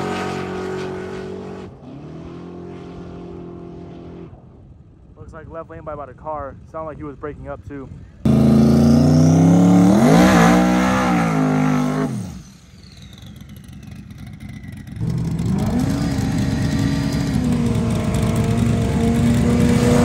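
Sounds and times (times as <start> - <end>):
drag car accelerating: 0.0 - 4.7, 8.2 - 20.0
car engine revving high: 8.3 - 12.5, 15.0 - 20.0.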